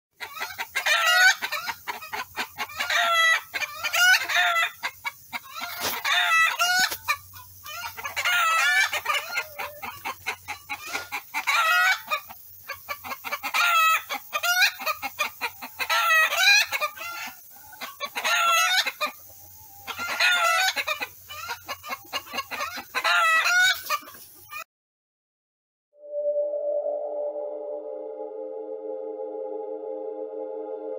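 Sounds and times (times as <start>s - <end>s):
chickens clucking and crowing: 0.2s - 24.7s.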